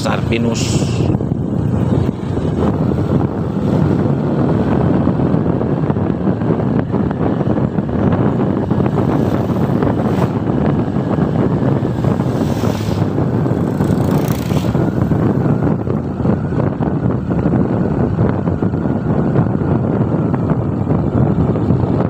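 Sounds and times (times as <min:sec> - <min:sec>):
wind buffeting microphone: 0:00.0 - 0:22.0
motorbike engine: 0:00.3 - 0:22.0
scooters passing: 0:11.7 - 0:15.6.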